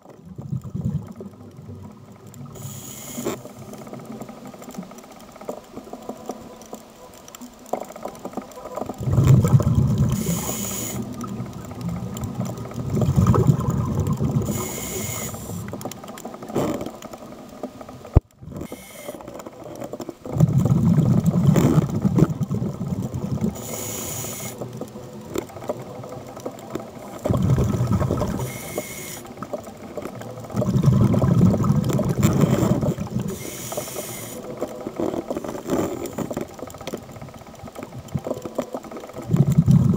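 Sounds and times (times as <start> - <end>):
exhaust bubbles rumbling: 0.0 - 2.6, 9.0 - 15.8, 20.2 - 23.9, 24.5 - 33.7, 34.8 - 39.9
regulator hiss on inhale: 2.4 - 3.9, 9.9 - 11.4, 14.2 - 15.9, 18.6 - 19.4, 23.4 - 24.8, 28.0 - 29.4, 32.4 - 36.3.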